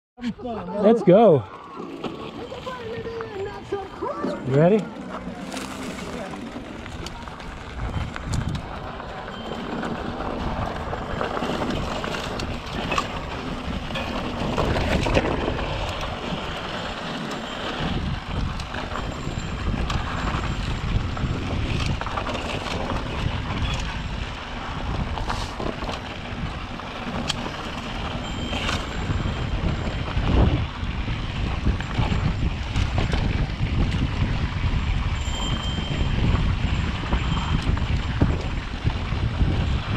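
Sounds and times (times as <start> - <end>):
wind buffeting microphone: 0.2 - 39.9
bike tyres rolling on dirt: 0.8 - 39.9
bike clicks and knocks: 4.2 - 34.4.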